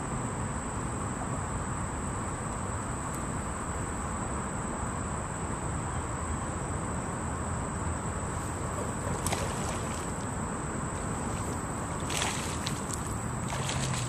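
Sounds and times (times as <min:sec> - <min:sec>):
insect drone: 0:00.0 - 0:14.0.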